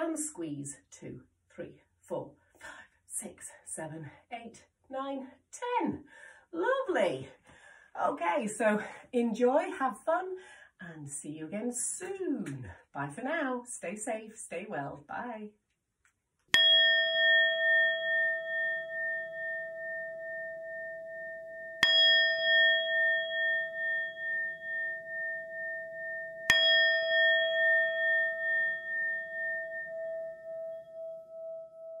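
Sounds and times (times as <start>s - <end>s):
bell-like chime ringing: 16.6s - 32.0s.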